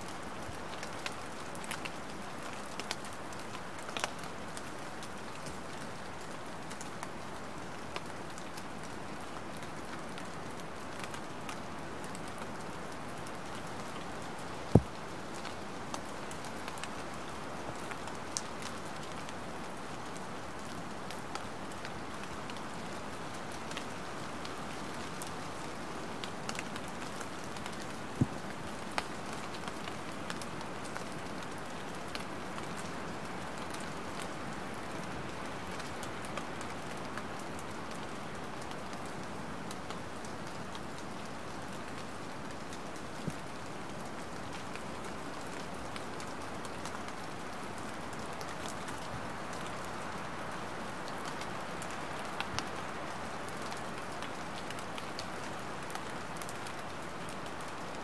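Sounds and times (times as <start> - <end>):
light rain falling: 0.0 - 58.0.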